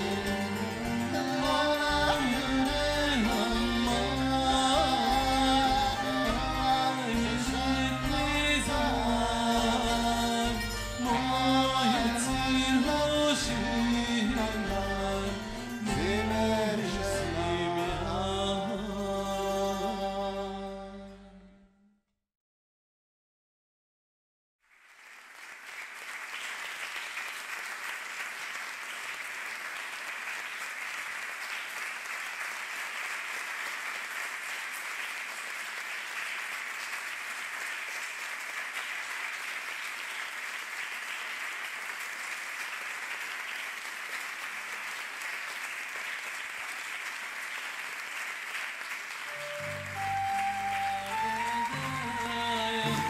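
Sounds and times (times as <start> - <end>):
live ensemble playing: 0.0 - 21.3, 49.2 - 53.0
audience applauding: 24.7 - 53.0.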